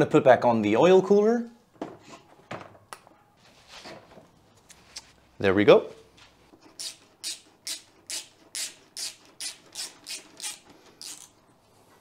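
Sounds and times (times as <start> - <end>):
ratchet wrench rasping: 6.8 - 11.4.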